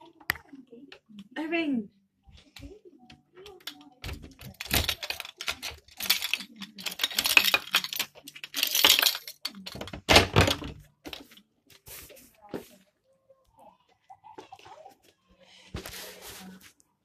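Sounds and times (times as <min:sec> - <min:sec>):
keys and door handle rattling: 0:03.5 - 0:10.8.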